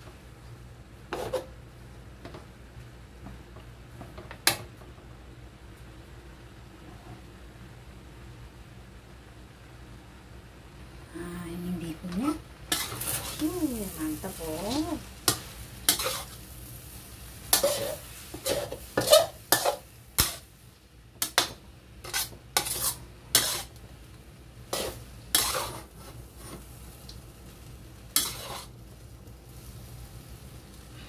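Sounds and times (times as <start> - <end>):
light sizzle: 0.0 - 31.0
spatula scraping a wok: 1.1 - 1.6, 12.2 - 20.6, 21.2 - 23.8, 24.6 - 26.8, 27.6 - 30.3.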